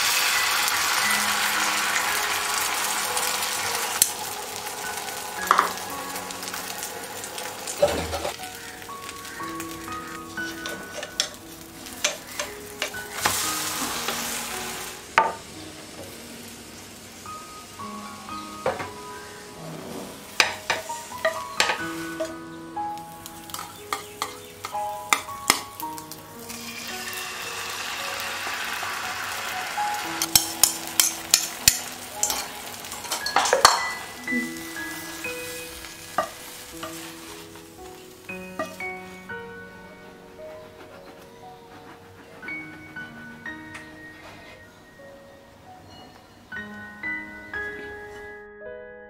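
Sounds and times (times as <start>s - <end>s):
egg sizzling in a frying pan: 0.0s - 39.2s
soft background music: 0.0s - 49.0s
spatula scraping a pan: 26.4s - 34.0s, 36.2s - 37.7s, 40.4s - 44.7s.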